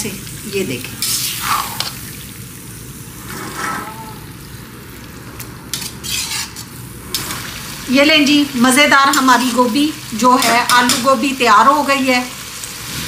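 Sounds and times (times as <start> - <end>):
vegetables sizzling in a pan: 0.0 - 13.0
spoon scraping a pan: 3.3 - 4.3, 5.7 - 6.8
metal spoon stirring: 5.7 - 6.7.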